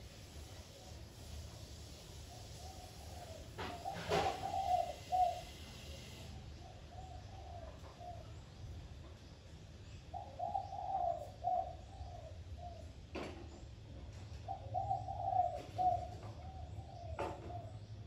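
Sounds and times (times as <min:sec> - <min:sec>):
dove cooing: 0:02.2 - 0:08.4, 0:10.1 - 0:13.0, 0:14.3 - 0:17.9.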